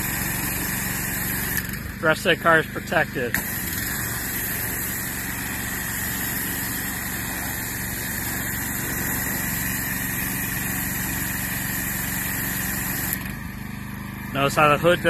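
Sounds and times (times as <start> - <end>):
pressure washer jet hissing: 0.0 - 13.3
pressure washer motor humming: 0.0 - 15.0.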